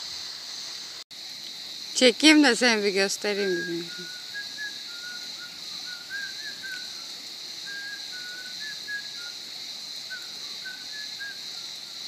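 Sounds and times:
high-pitched insect drone: 0.0s - 12.0s
whistled bird notes: 3.4s - 9.4s, 10.1s - 12.0s.

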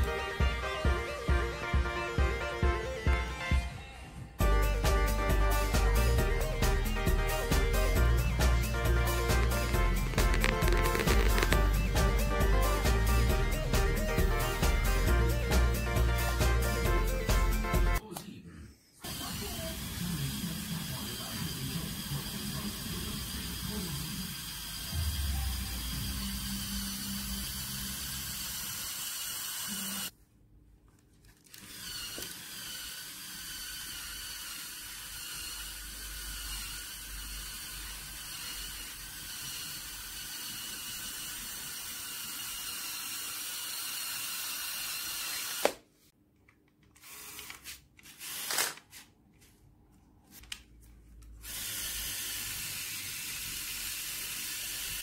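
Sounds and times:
toy motors and gears whining: 7.9s - 12.0s, 19.0s - 30.1s, 31.4s - 45.8s, 47.0s - 48.8s, 51.4s - 55.0s.

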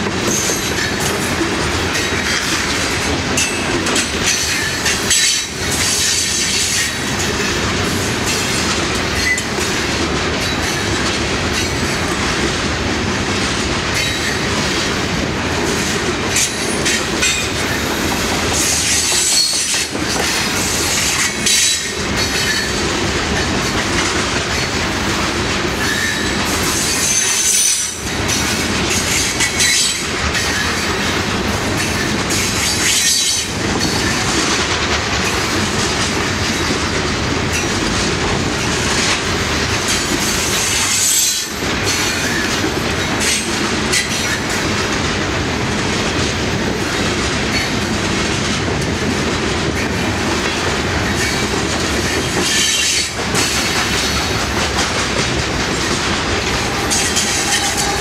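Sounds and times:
train wheels clattering over rails: 0.0s - 58.0s
high-pitched wheel squeal: 56.7s - 58.0s.

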